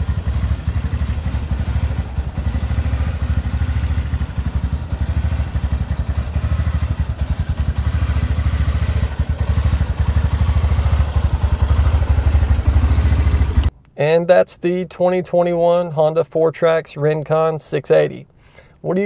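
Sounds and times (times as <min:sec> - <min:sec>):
atv engine idling: 0:00.0 - 0:13.7.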